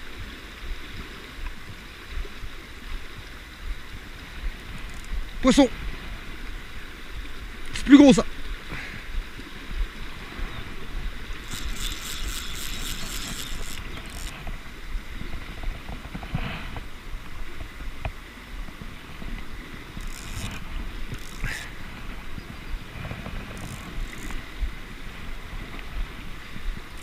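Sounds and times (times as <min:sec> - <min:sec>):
river water running over stones: 0:00.0 - 0:27.0
wind rumbling on microphone: 0:00.0 - 0:27.0
fishing reel ratchet clicking: 0:04.8 - 0:05.2, 0:11.4 - 0:14.4, 0:19.9 - 0:21.7, 0:23.5 - 0:24.4.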